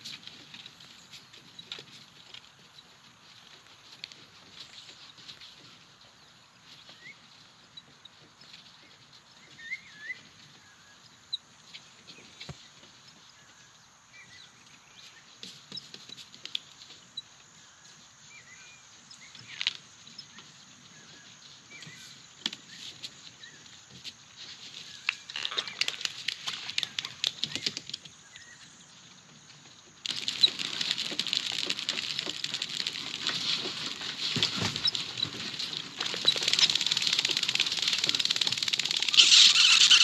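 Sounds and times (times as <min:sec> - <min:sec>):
small clicks: 0:24.9 - 0:28.5, 0:30.0 - 0:40.0.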